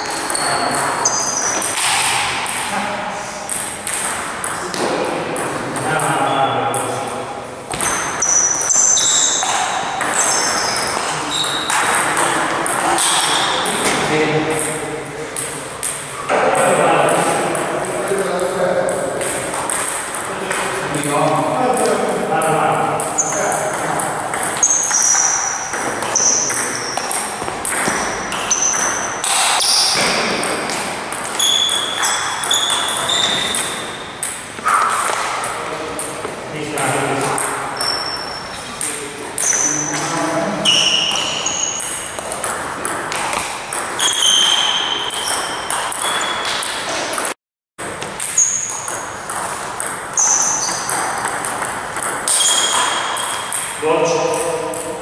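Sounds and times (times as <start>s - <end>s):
high-pitched squeaks: 0.0s - 1.8s, 7.7s - 13.9s, 23.0s - 30.5s, 31.3s - 35.2s, 37.8s - 42.2s, 44.0s - 47.0s, 48.2s - 49.2s, 50.1s - 51.2s, 52.3s - 54.2s
table tennis ball hits: 0.0s - 2.8s, 3.4s - 55.0s
table tennis ball clicking: 18.8s - 20.6s, 21.7s - 36.1s, 48.0s - 54.9s.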